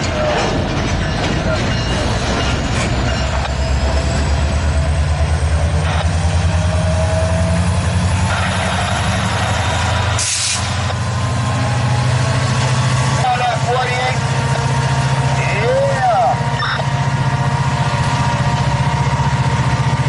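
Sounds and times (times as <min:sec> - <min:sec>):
diesel locomotive engine pulsing: 0:00.0 - 0:20.0
air hiss: 0:10.2 - 0:10.8.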